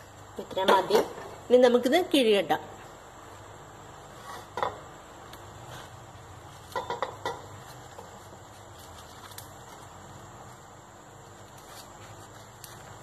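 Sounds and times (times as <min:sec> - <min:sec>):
leaf rustling and crackling: 0:03.3 - 0:13.0.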